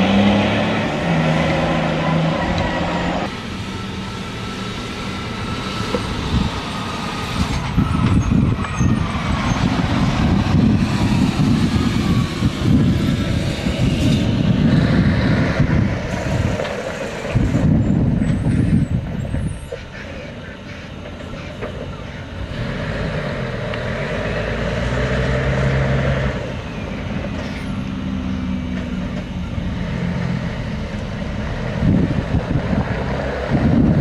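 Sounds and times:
diesel truck engine under load: 0:00.0 - 0:34.0.

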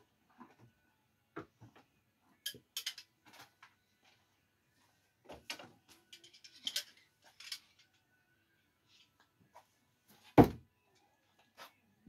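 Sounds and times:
metal screwdrivers clinking together: 0:02.4 - 0:03.1, 0:05.5 - 0:07.9.

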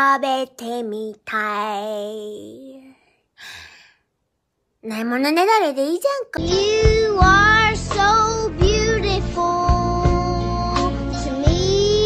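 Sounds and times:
breathy sigh: 0:02.9 - 0:04.1.

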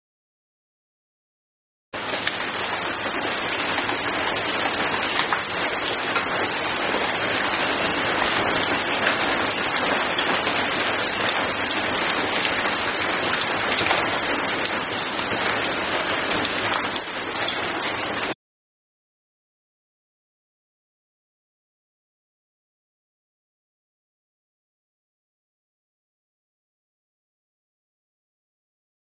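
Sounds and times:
heavy rain splashing: 0:02.0 - 0:18.4.

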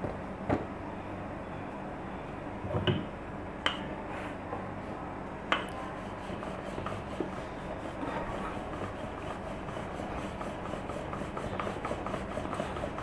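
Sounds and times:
low background hum and hiss: 0:00.0 - 0:13.0
rolling pin rolling dough: 0:04.1 - 0:13.0.

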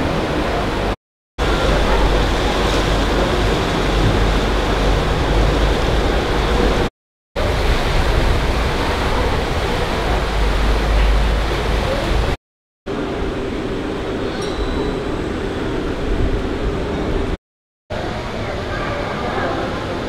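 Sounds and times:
water rushing past hull: 0:00.0 - 0:12.4
heavy low engine rumble: 0:00.0 - 0:14.3.

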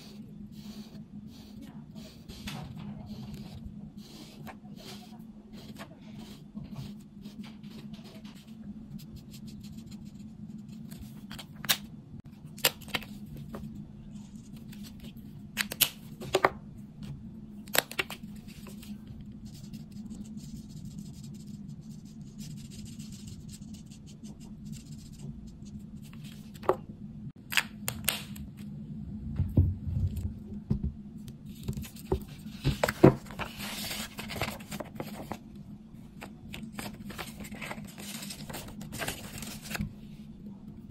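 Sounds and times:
marker scratching on paper: 0:00.0 - 0:11.0
low hum: 0:06.3 - 0:40.9
paper rustling: 0:31.5 - 0:35.4, 0:36.1 - 0:39.9.

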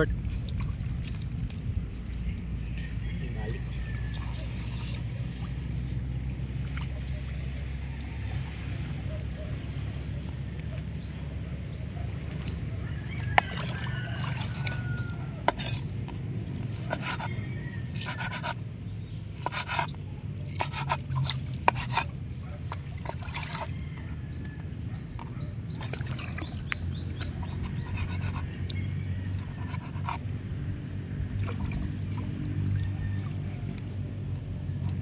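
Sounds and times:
knife scraping strokes: 0:14.3 - 0:16.0, 0:16.8 - 0:17.4, 0:18.0 - 0:18.6, 0:19.4 - 0:22.2, 0:27.2 - 0:28.5, 0:29.4 - 0:30.2.

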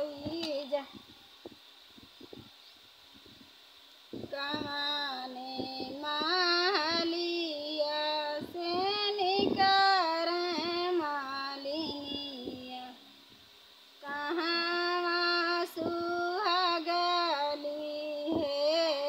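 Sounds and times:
woman singing unaccompanied: 0:00.0 - 0:01.1, 0:04.2 - 0:13.2, 0:14.0 - 0:19.0.

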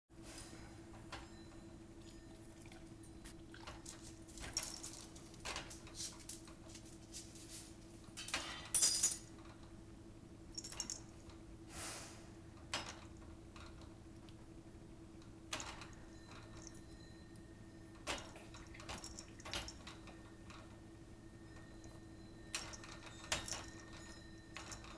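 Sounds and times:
faint steady hum: 0:00.2 - 0:24.9
metallic jingling of wire racks: 0:21.5 - 0:24.9.

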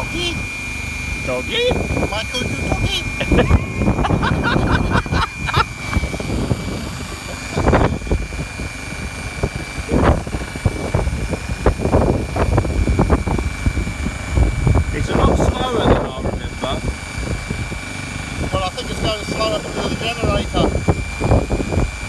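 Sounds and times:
hot-air welder blower whining: 0:00.0 - 0:22.0.

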